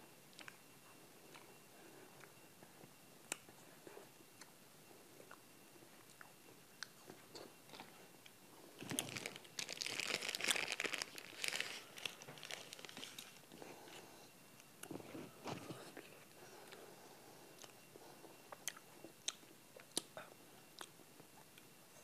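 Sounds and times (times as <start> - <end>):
plastic wrapper crinkling and tearing: 8.8 - 13.4.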